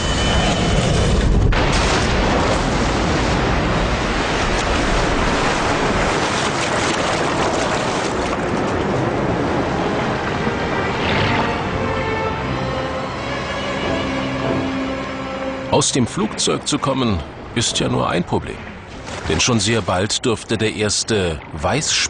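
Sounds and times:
churning bubbling water: 1.5 - 11.7.

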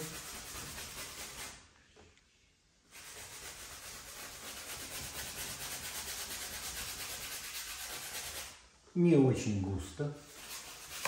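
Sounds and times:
bristle brush scrubbing canvas: 0.0 - 1.6, 2.9 - 8.6, 10.1 - 11.0.

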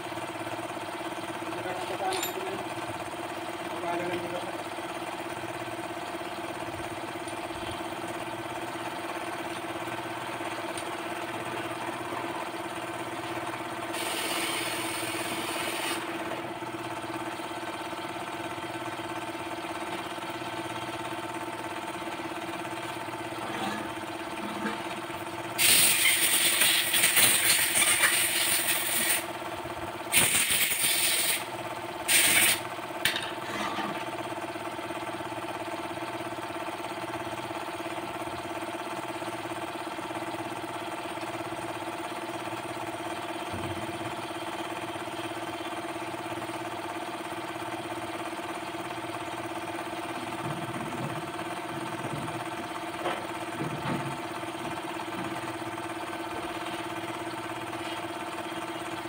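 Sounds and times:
mechanical hum: 3.8 - 34.7, 42.4 - 45.9.

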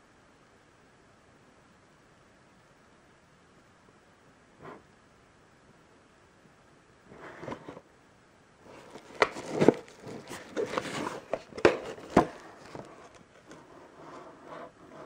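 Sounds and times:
cardboard box rubbing and scraping: 8.7 - 15.0.

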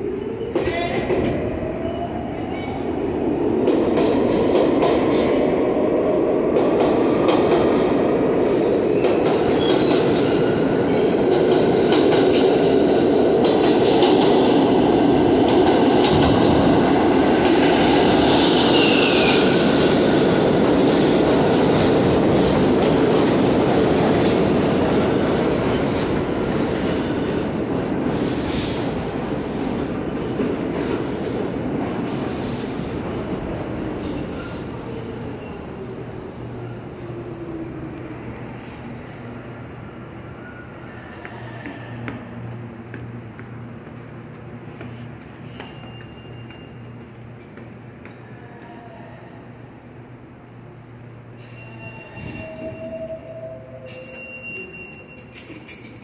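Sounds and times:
train wheels rumbling on rail: 0.4 - 36.7.

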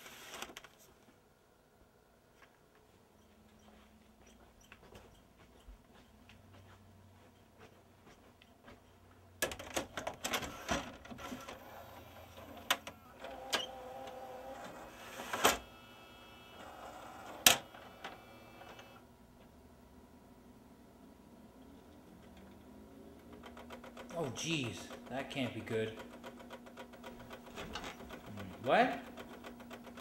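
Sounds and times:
loading mechanism whirring: 9.4 - 19.0, 22.2 - 30.0.

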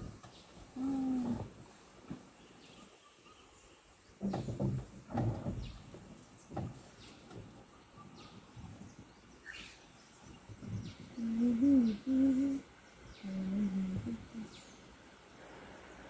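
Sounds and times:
faint bird chirps: 2.4 - 4.4, 6.9 - 15.0
elephant low wavering call: 11.2 - 14.6.

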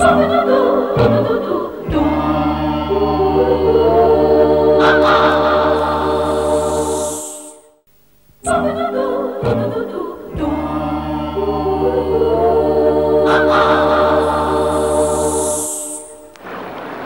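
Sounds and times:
group of voices singing: 0.0 - 7.7, 8.4 - 16.2
synthesizer chords: 1.8 - 7.5, 10.4 - 16.0
cymbal swell: 2.0 - 7.8, 10.6 - 16.3.

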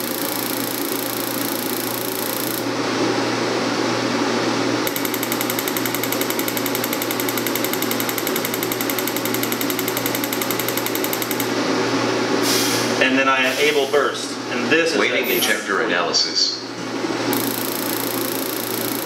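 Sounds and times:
shop machinery hum: 0.0 - 19.0
diesel injector ticking: 4.9 - 11.5, 17.3 - 19.0.

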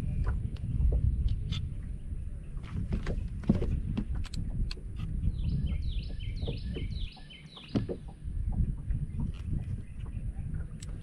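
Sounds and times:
songbird singing: 0.0 - 11.0
steady low rumble: 0.0 - 11.0.

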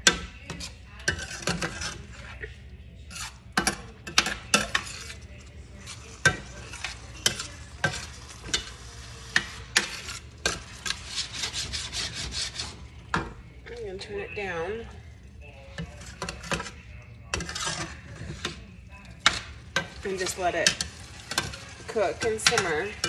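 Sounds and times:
metal spoon scraping skillet: 0.0 - 2.5, 3.1 - 15.0, 15.6 - 23.0
pan sizzling: 5.8 - 13.3, 19.2 - 23.0.

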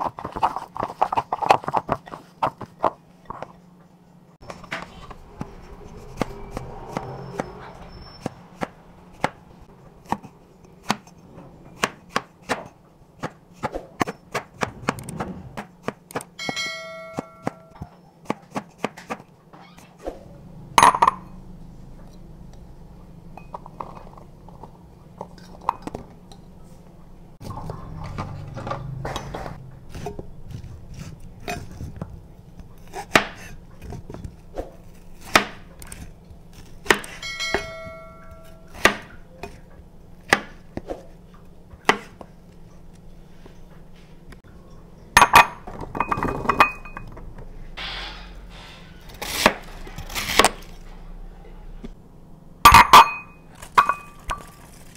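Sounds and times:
ringing chime: 16.4 - 17.8, 37.2 - 38.8.

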